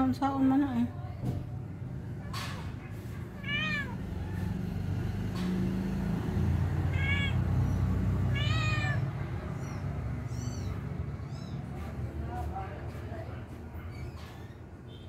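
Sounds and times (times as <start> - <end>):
cat meowing: 2.2 - 4.7, 6.4 - 12.0.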